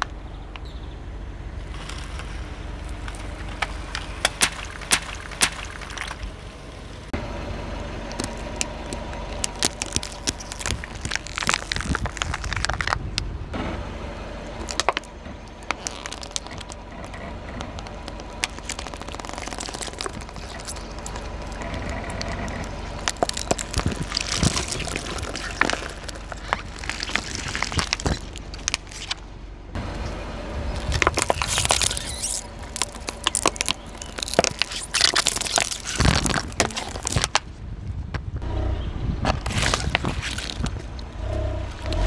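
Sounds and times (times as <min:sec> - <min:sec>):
plastic bottles cracking under tyre: 0:01.7 - 0:06.4, 0:08.1 - 0:13.3, 0:14.5 - 0:29.2, 0:30.8 - 0:38.3, 0:39.3 - 0:41.1
gel beads bursting: 0:03.9 - 0:06.3, 0:08.1 - 0:13.1, 0:14.6 - 0:16.9, 0:17.6 - 0:29.2, 0:30.8 - 0:37.4.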